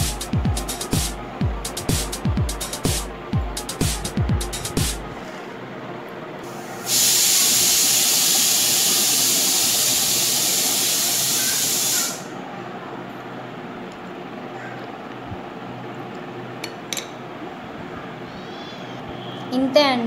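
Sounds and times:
background music with deep beats: 0.0 - 5.2
loud steady hiss: 6.4 - 12.4.

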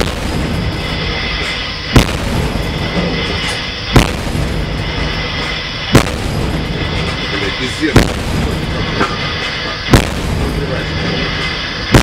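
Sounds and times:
naval gun shots: 0.0 - 0.5, 1.9 - 2.6, 3.9 - 4.6, 5.9 - 6.6, 7.9 - 8.6, 9.9 - 10.5.

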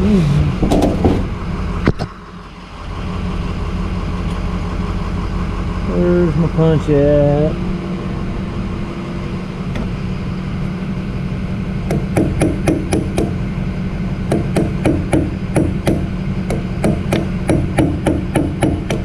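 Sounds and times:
hammer striking metal punch: 11.9 - 13.4, 14.3 - 19.0.

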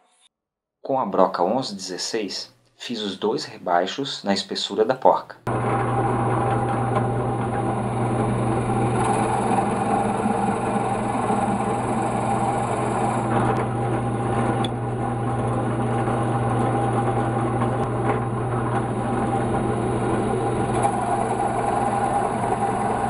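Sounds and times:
drill press boring into wood: 5.5 - 23.0.

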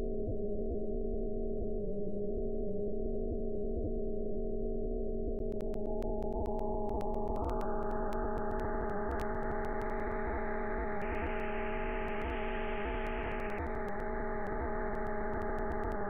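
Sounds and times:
scattered clicks: 5.4 - 11.4, 12.0 - 16.0
low tones hum: 5.4 - 16.0.

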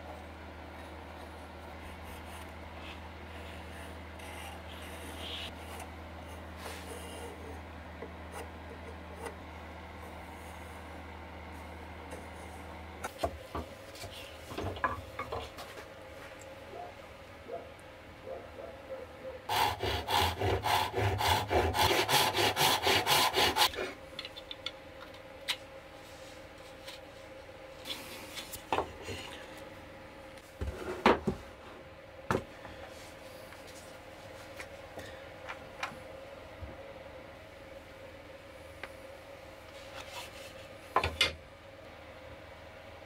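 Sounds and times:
hand saw cutting wood: 19.5 - 23.9.

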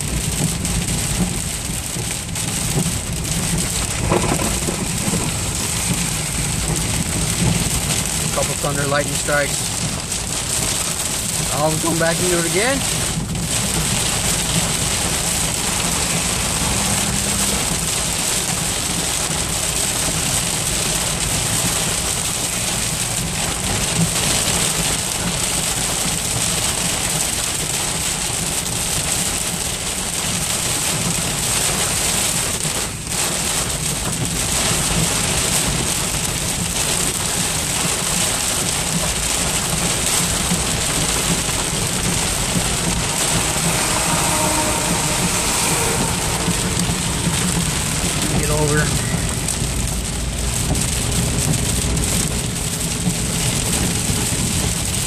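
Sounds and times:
heavy rain on car roof: 0.0 - 55.0
tyre and road noise: 0.0 - 55.0.

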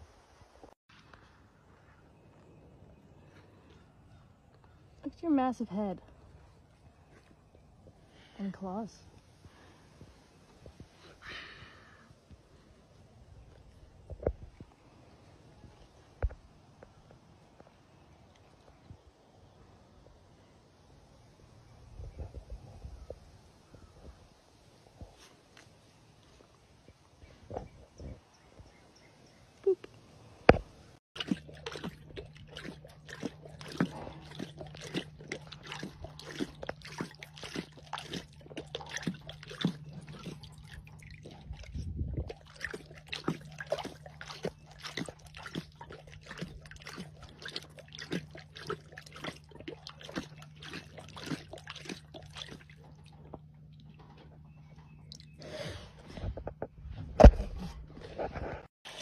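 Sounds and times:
low steady hum: 29.2 - 58.6
lioness lapping water: 31.2 - 56.6, 57.2 - 59.0.

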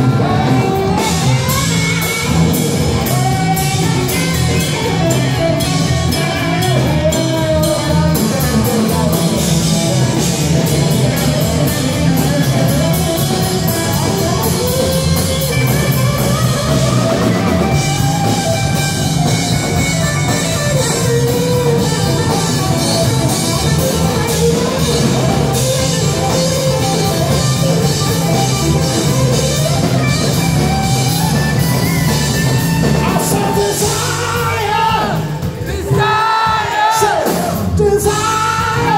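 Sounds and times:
electric guitar: 0.0 - 36.1
drum kit: 0.0 - 38.9
electric bass: 0.0 - 38.9.

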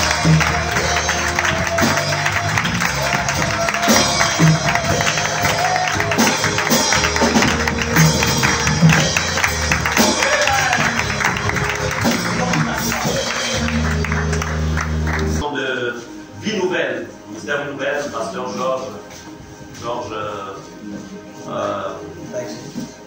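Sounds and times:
drum kit beat: 0.0 - 15.4
sustained bass notes: 0.0 - 17.7
live praise band playing: 0.0 - 23.0.

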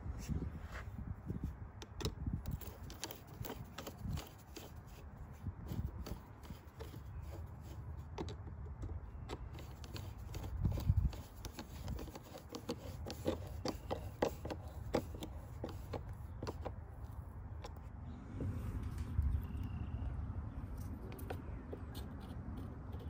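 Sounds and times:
screwdriver turning clamp screw: 1.8 - 17.9.

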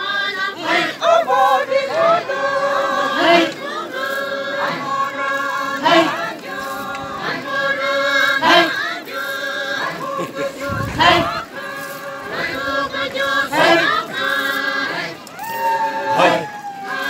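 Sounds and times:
group chanting: 0.0 - 17.0
loud rising shout: 10.6 - 11.4, 15.3 - 17.0.

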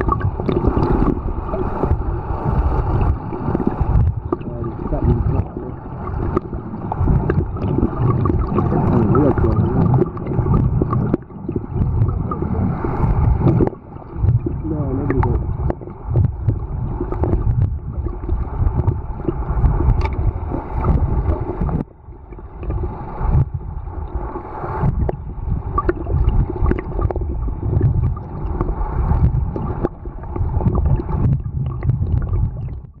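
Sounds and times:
low underwater rumble: 0.0 - 33.0
water sloshing and gurgling: 0.0 - 33.0.

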